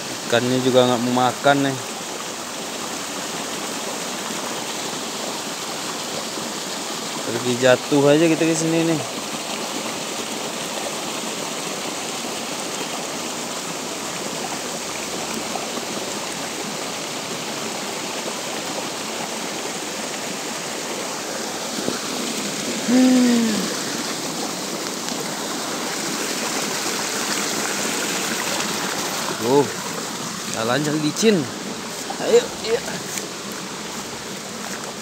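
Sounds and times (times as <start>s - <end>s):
falling rain: 0.0s - 35.0s
stream rushing: 0.0s - 35.0s
person vocal sound: 22.8s - 24.1s, 32.0s - 33.2s.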